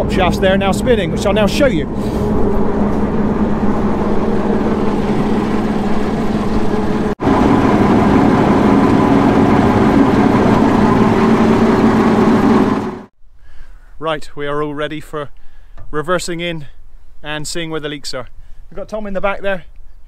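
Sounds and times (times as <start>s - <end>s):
engine idling with mechanical drone: 0.0s - 13.1s.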